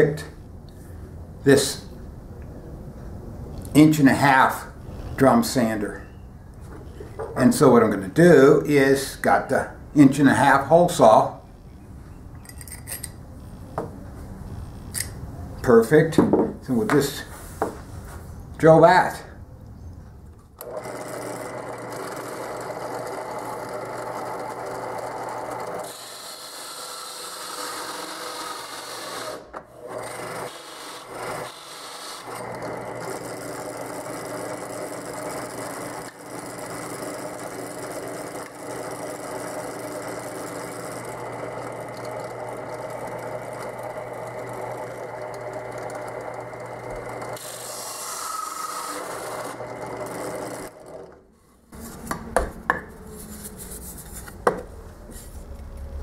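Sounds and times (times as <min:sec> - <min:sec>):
drill press motor hum: 0:20.6 - 0:51.2.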